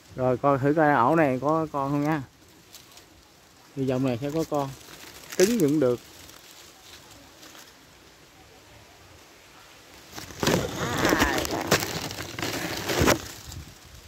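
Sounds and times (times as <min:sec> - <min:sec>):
leaves and twigs rustling: 0:00.0 - 0:14.0
twigs snapping: 0:04.3 - 0:07.7, 0:10.1 - 0:13.6.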